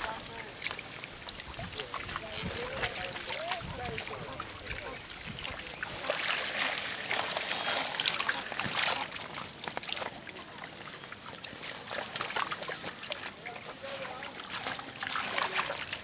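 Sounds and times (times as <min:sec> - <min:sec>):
pond water splashing: 0:00.0 - 0:16.0.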